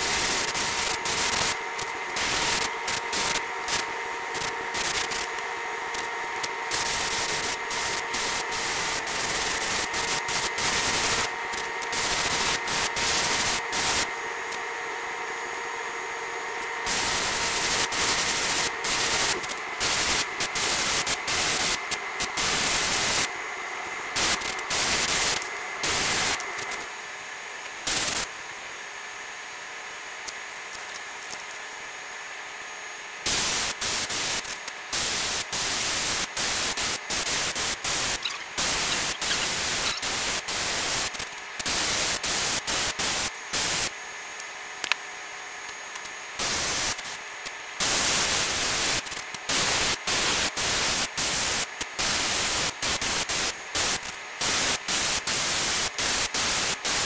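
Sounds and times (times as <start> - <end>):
airbrush spraying hiss: 0.0 - 5.3, 6.7 - 14.1, 16.9 - 23.4, 33.3 - 43.9.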